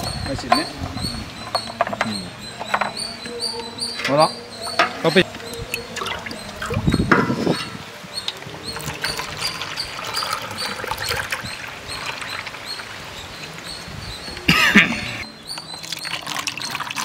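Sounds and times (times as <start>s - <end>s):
birds chirping: 0.0s - 17.0s
juice trickling into cups: 4.7s - 13.8s, 14.4s - 17.0s.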